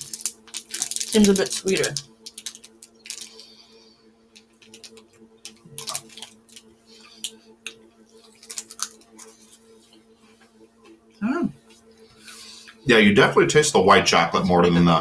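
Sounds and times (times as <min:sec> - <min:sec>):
plastic wrapper crinkling: 0:00.0 - 0:03.6, 0:04.3 - 0:09.6
refrigerator hum: 0:00.0 - 0:15.0.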